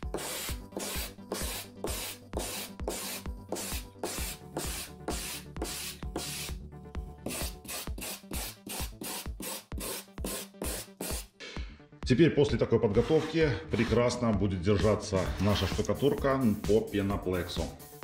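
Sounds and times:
wire brush scratching foam board: 0.0s - 6.6s, 7.2s - 11.3s, 12.9s - 14.2s, 14.8s - 16.2s.

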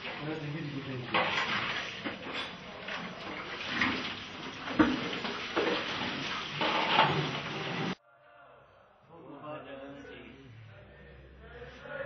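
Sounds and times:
tap water running into basin: 0.0s - 8.0s.

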